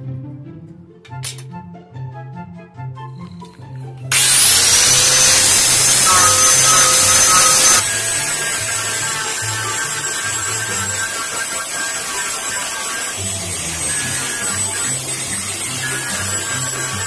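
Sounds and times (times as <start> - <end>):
background music: 0.0 - 4.1
electric angle grinder whining: 4.1 - 17.0.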